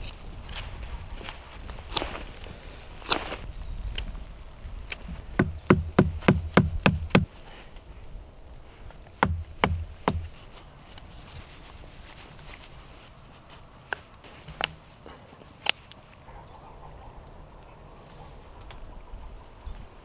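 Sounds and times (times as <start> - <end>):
knife striking wood knocks: 5.4 - 7.3, 9.2 - 10.4.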